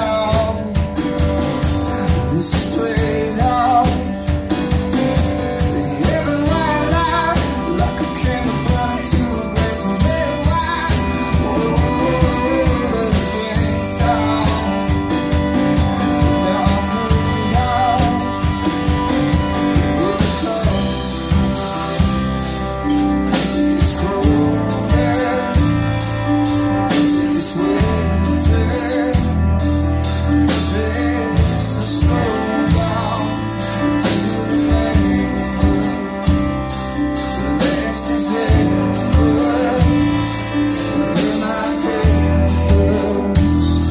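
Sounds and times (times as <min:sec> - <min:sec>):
bass guitar: 0:00.0 - 0:43.9
digital piano: 0:00.0 - 0:43.9
drum kit: 0:00.0 - 0:43.9
electric guitar: 0:00.0 - 0:43.9.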